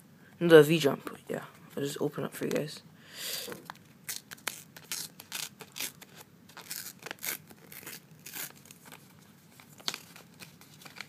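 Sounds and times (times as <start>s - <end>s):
card pack wrapper ripping: 3.6s - 11.0s.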